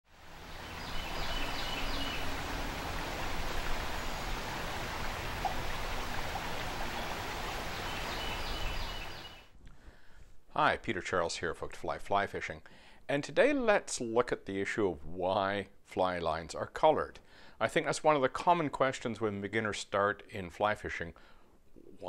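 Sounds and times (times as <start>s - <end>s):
creek water rushing: 0.1s - 9.4s.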